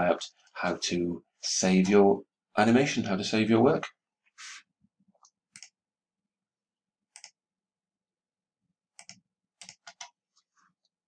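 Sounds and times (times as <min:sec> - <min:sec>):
computer mouse clicks: 0:05.2 - 0:05.8, 0:07.1 - 0:07.4, 0:09.0 - 0:10.2.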